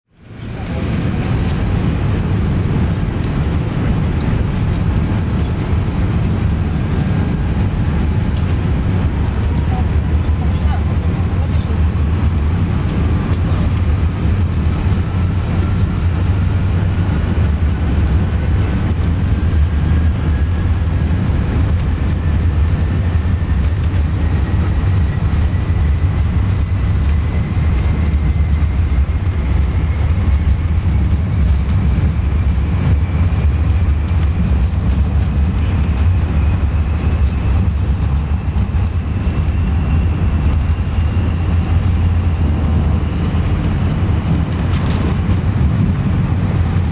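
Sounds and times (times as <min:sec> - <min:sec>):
jet engine rumble in cabin: 0:00.1 - 0:46.9
faint rising engine whine: 0:00.2 - 0:46.9.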